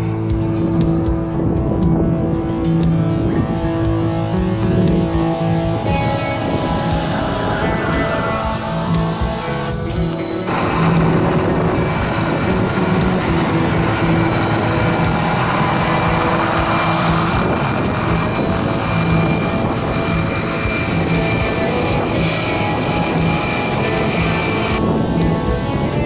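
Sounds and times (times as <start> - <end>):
model helicopter rotors whining: 5.8 - 24.8.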